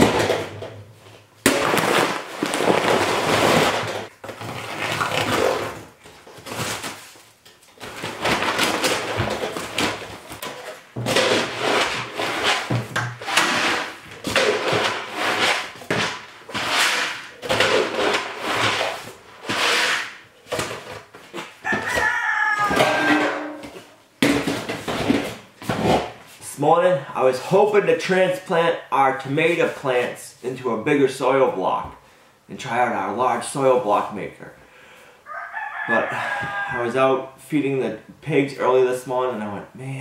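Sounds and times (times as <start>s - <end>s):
paper towel scraping a griddle: 11.2s - 20.2s.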